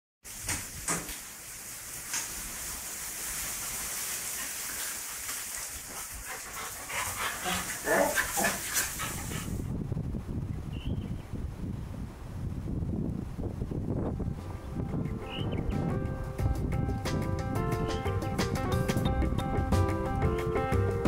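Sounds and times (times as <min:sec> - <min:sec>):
steady hiss: 0:00.3 - 0:09.6
wind rumbling on microphone: 0:05.7 - 0:20.4
dog barking: 0:07.4 - 0:08.7.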